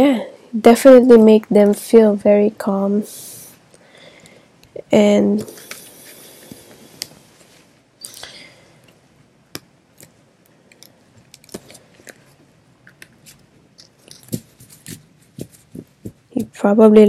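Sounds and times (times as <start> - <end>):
playing cards shuffled: 9.6 - 16.6.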